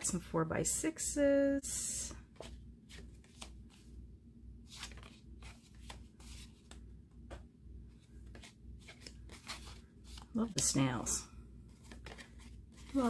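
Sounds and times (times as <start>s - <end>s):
low steady hum: 0.0s - 13.0s
paper cards rustling: 2.3s - 3.9s, 4.6s - 6.8s, 7.9s - 10.8s, 11.6s - 13.0s.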